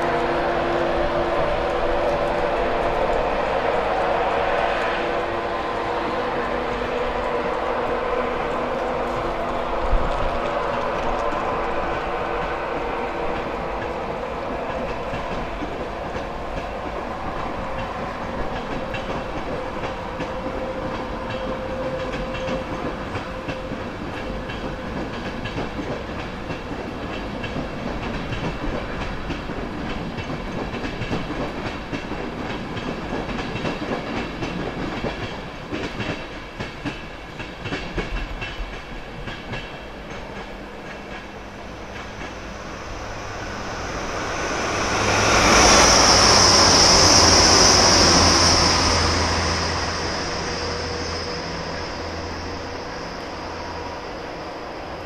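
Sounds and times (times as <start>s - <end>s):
express train rumbling past: 0.0s - 55.0s.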